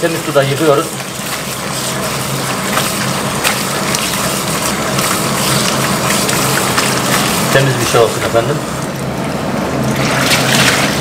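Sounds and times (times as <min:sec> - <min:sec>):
tap water pouring into basin: 0:09.8 - 0:11.0.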